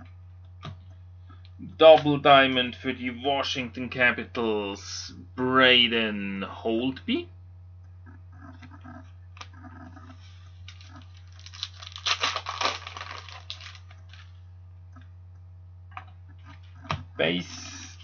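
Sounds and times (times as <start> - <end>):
low electrical hum: 0.0 - 18.0
card pack wrapper crinkling and tearing: 10.6 - 14.3.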